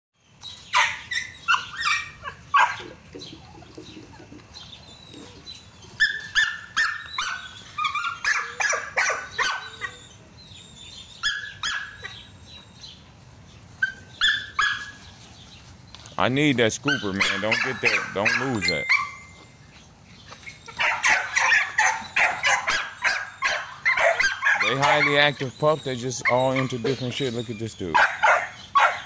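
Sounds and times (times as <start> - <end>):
dog barking and yipping: 0.6 - 4.3, 5.2 - 10.2, 11.1 - 12.3, 13.8 - 15.1, 16.8 - 19.4, 20.5 - 27.2, 27.9 - 29.0.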